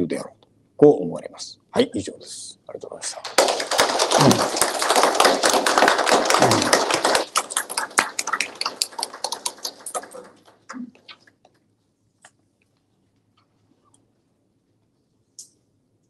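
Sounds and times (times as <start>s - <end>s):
audience applause: 3.2s - 10.5s.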